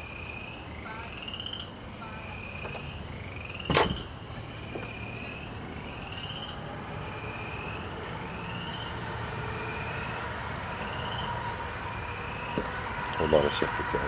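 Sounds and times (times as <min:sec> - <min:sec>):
frog calling: 0:00.0 - 0:13.8.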